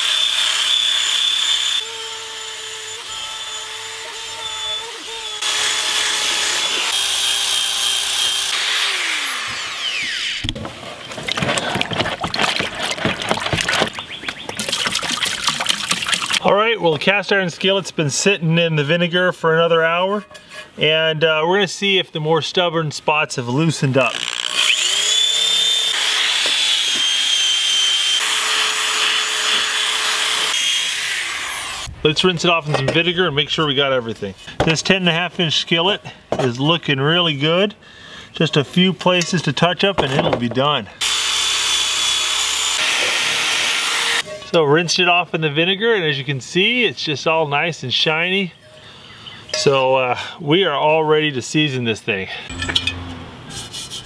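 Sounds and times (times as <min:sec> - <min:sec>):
power drill wire brush whining: 0:00.0 - 0:10.5, 0:24.0 - 0:31.9, 0:41.0 - 0:44.5
wire brush scrubbing metal: 0:20.0 - 0:20.8, 0:52.5 - 0:54.0.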